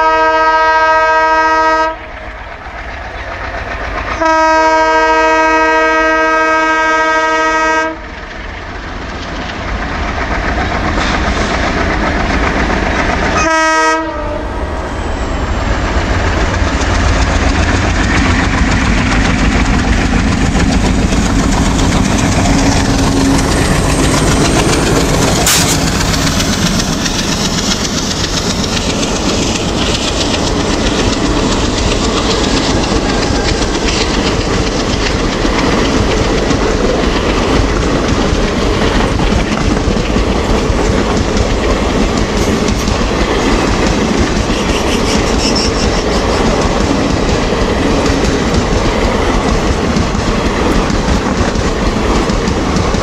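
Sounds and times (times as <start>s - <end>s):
locomotive horn blasts: 0.0s - 2.0s, 4.2s - 8.0s, 13.4s - 14.6s
train wheels clacking on rail joints: 0.0s - 14.4s, 15.6s - 53.0s
locomotive engine chugging: 15.5s - 53.0s.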